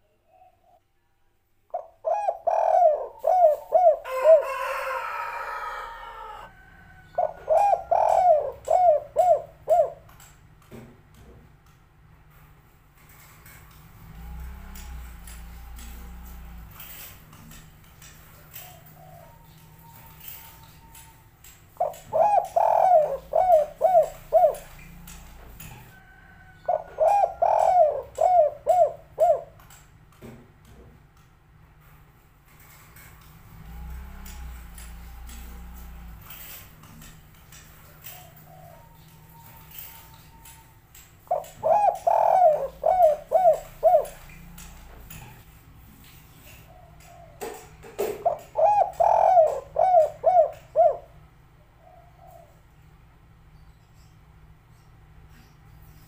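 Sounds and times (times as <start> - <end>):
dove cooing: 1.7 - 10.4, 13.9 - 29.7, 32.6 - 52.8.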